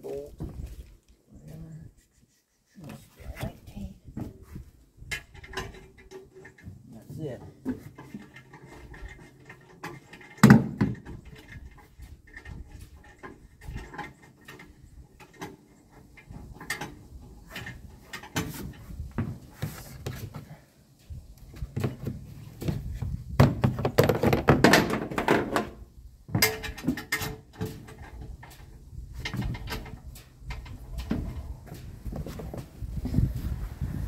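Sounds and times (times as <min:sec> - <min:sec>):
scraping and rustling: 0:11.1 - 0:25.7.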